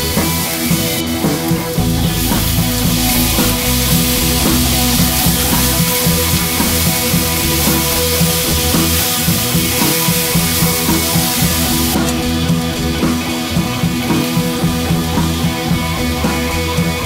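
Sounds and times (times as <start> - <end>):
background music with drums and guitar: 0.0 - 17.0.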